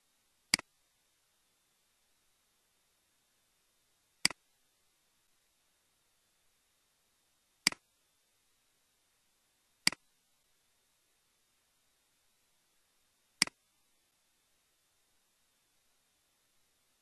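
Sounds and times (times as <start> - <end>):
mouse button clicks: 7.6 - 7.8.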